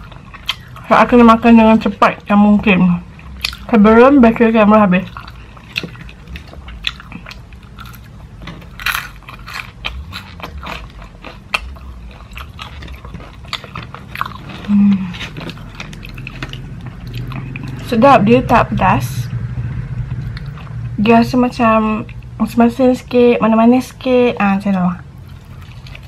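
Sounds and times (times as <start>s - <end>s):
crunchy chewing: 0.0s - 1.4s, 3.1s - 3.8s, 5.0s - 17.9s, 25.1s - 26.0s.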